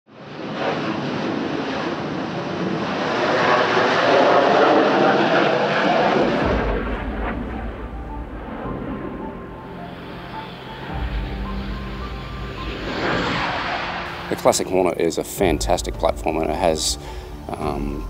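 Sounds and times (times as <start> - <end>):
jet engine roar on takeoff: 0.1 - 16.4
deep dull jet rumble: 4.6 - 18.0.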